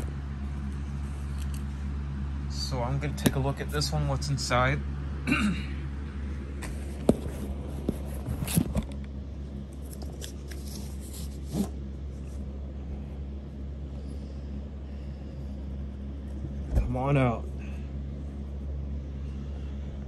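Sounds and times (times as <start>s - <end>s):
steady low hum: 0.0s - 20.0s
knocks and scrapes on cardboard: 6.6s - 8.9s
cardboard rustling: 6.6s - 9.0s, 9.8s - 12.4s.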